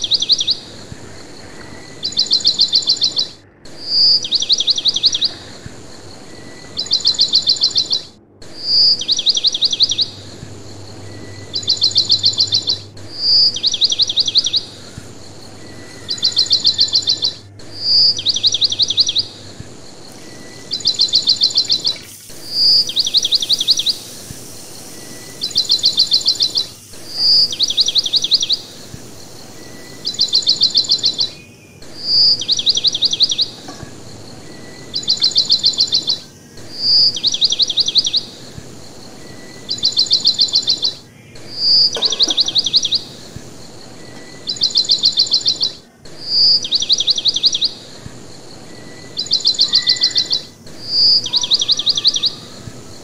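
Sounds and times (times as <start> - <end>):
bird-like chirping trills: 0.0 - 53.0.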